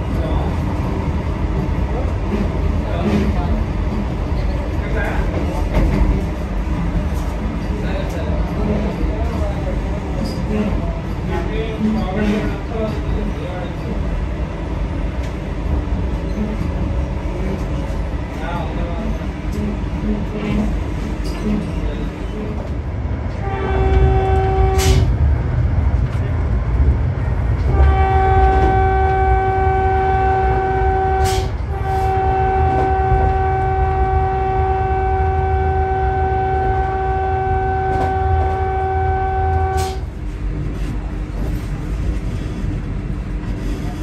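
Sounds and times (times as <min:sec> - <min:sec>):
low rumble of train running: 0:00.0 - 0:44.0
train horn blasts: 0:23.4 - 0:25.1, 0:27.7 - 0:40.1.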